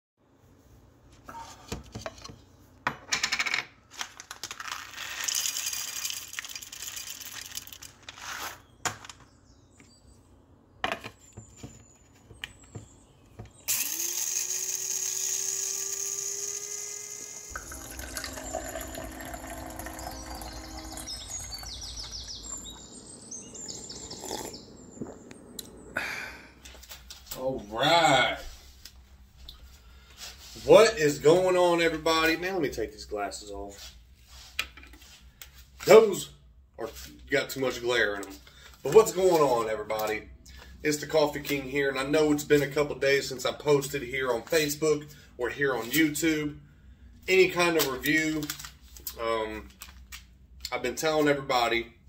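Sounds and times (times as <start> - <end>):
small electric motor spinning: 13.7 - 17.6.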